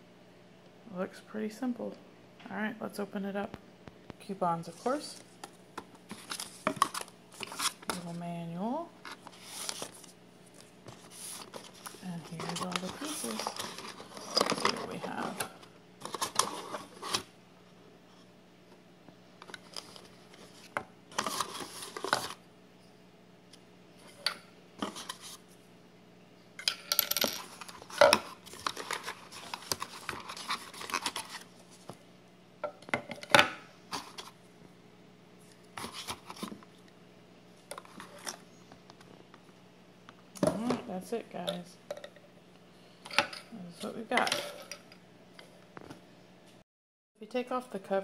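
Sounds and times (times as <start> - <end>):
cardboard rustling and scraping: 4.7 - 8.2, 9.0 - 17.3, 19.6 - 22.4, 27.5 - 32.0, 35.8 - 36.6.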